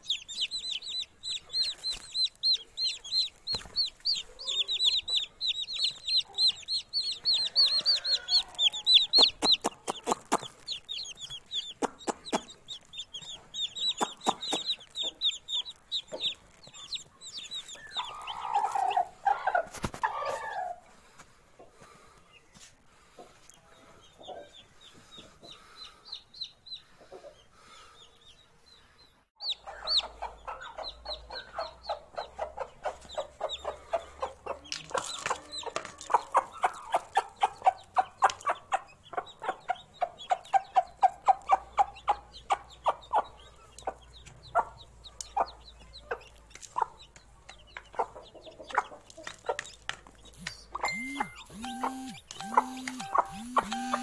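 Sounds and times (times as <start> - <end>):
faint high chick chirps: 0.0 - 20.9, 21.7 - 54.0
hen clucks and chick peeps: 0.0 - 21.0, 21.6 - 54.0.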